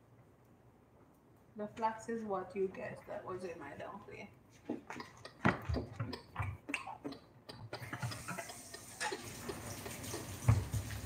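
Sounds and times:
tap water running into sink: 8.0 - 11.0.

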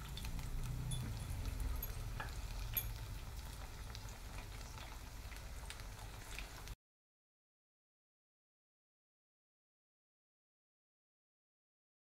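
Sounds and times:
leaves sizzling in hot oil: 0.0 - 6.8.

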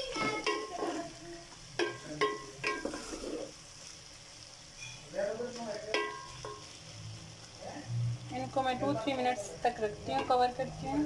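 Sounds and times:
food sizzling in oil: 0.0 - 11.0
spatula scraping metal pan: 1.8 - 3.6, 4.7 - 5.1.

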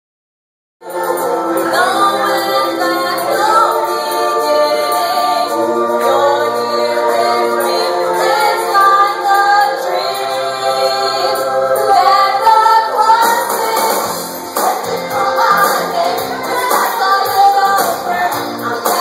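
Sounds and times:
group singing through microphone: 0.8 - 19.0
woman singing: 11.9 - 19.0.

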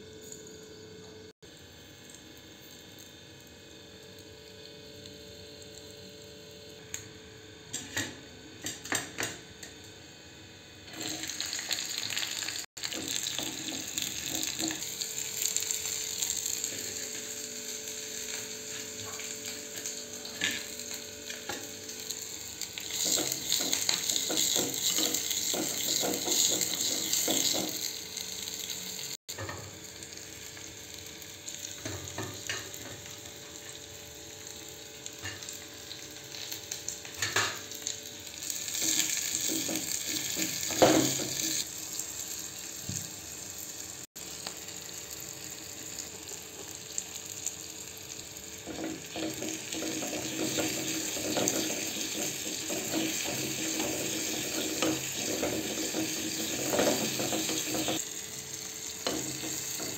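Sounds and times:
vegetables sizzling in hot oil: 10.1 - 59.9.

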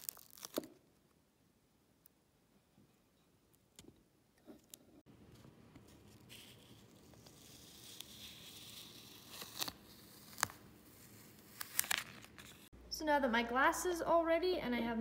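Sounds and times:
transfer paper rustling and crinkling: 0.0 - 0.8, 5.3 - 12.7.

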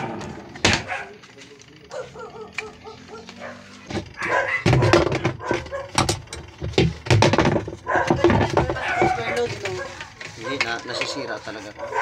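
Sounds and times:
dog barking: 0.7 - 1.2, 1.9 - 6.0, 7.8 - 12.0.

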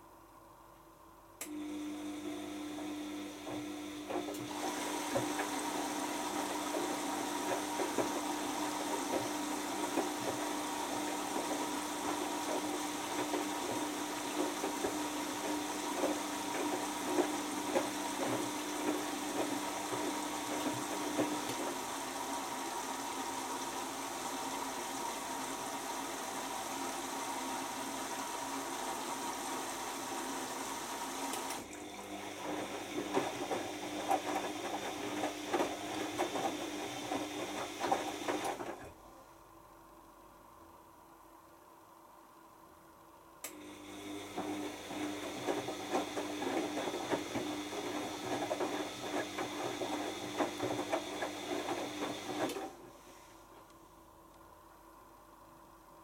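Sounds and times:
washing machine hum: 0.0 - 56.0
laundry splashing and knocking in drum: 4.1 - 24.1, 31.6 - 38.8, 44.3 - 52.6.

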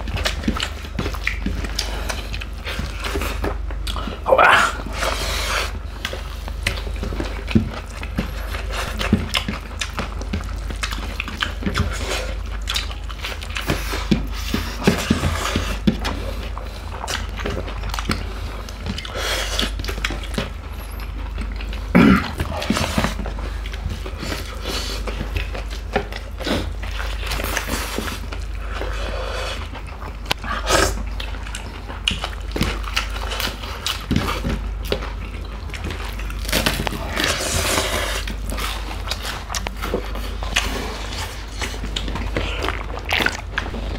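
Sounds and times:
chewing and mouth smacks: 0.0 - 43.9.

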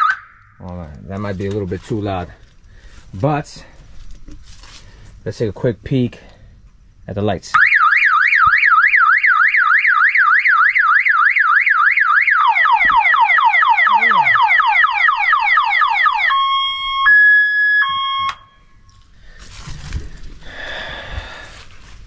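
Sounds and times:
electronic multi-tone alarm siren: 0.0 - 0.5, 7.6 - 18.6.

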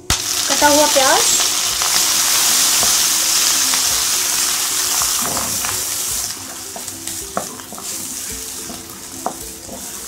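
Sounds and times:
onion sizzling in hot fat: 0.0 - 10.0
wooden spatula scraping pan: 6.5 - 10.0.

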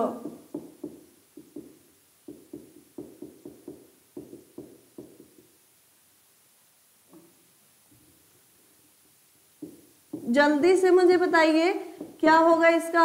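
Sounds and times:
marker writing on a whiteboard: 0.0 - 5.6, 9.5 - 12.6.

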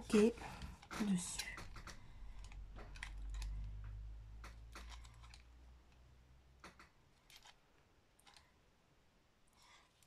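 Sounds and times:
faint clicks and taps: 0.4 - 6.0, 6.6 - 8.5.

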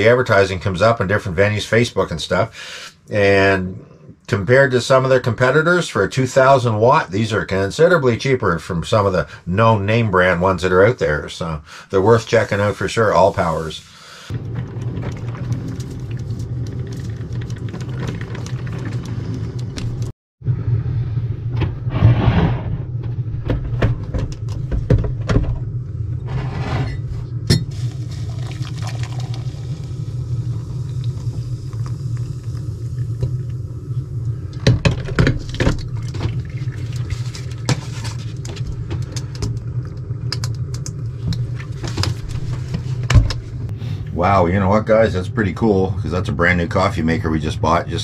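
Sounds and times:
steady low hum: 0.0 - 48.0
coffee pouring: 12.5 - 20.1, 27.5 - 42.8.

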